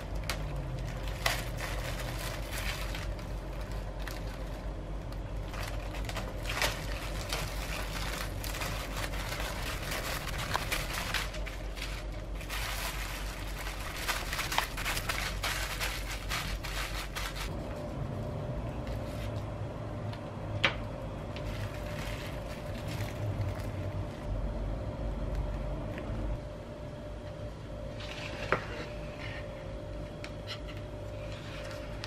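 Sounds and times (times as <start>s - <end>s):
sandwich wrap crinkling: 0.0s - 17.6s, 21.4s - 24.3s.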